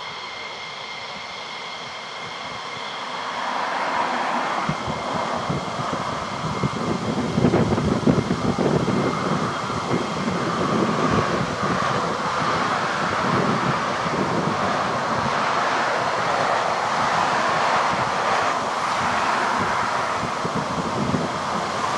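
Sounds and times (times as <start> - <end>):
jet engine rumble: 0.0 - 21.9
jet engine whine: 0.0 - 21.9.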